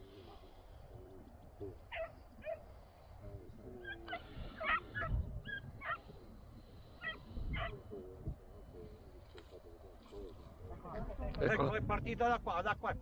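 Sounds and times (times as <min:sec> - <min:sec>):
hounds yelping and barking: 0:01.8 - 0:02.8, 0:03.8 - 0:06.1, 0:06.9 - 0:07.8.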